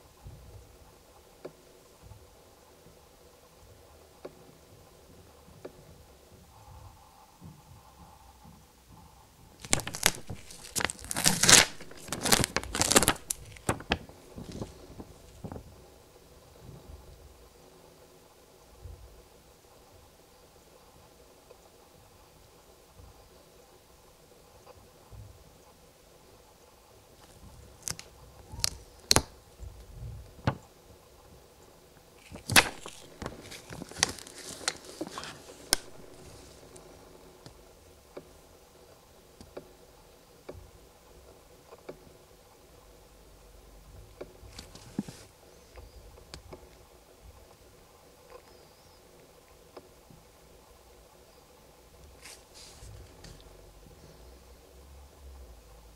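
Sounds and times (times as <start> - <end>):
paper pages flipping: 9.6 - 15.4, 27.2 - 29.3, 32.2 - 36.9, 52.2 - 53.4.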